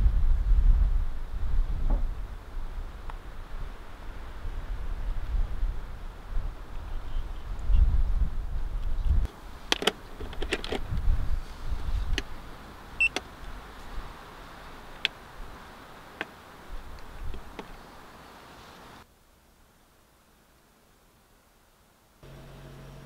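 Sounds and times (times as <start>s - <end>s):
wind buffeting microphone: 0.0s - 9.3s, 10.0s - 18.0s.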